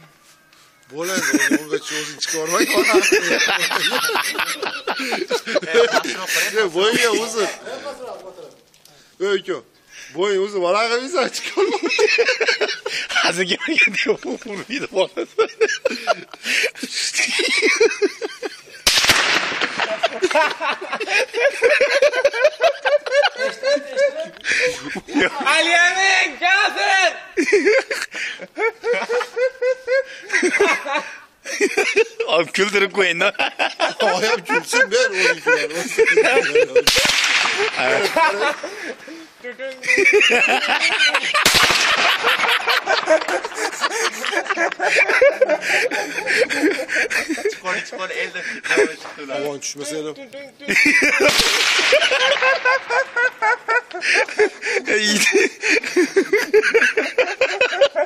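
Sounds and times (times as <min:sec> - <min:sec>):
men laughing: 0:00.9 - 0:08.2, 0:10.0 - 0:58.0
men chuckling: 0:01.0 - 0:08.0, 0:11.3 - 0:18.9, 0:19.6 - 0:25.6, 0:27.4 - 0:32.3, 0:33.2 - 0:36.9, 0:37.5 - 0:49.2, 0:50.6 - 0:58.0
rifle shot with echo: 0:18.9 - 0:20.0, 0:36.9 - 0:37.9, 0:41.4 - 0:42.2, 0:51.2 - 0:52.4.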